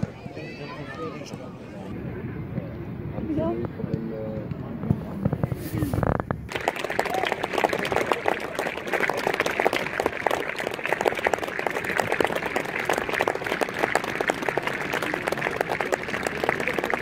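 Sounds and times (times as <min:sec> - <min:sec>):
crowd applauding: 0:06.5 - 0:17.0.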